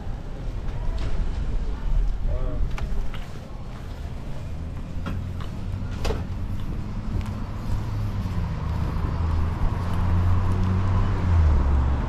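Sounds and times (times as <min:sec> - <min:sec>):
vehicle engine humming: 0:02.7 - 0:12.0.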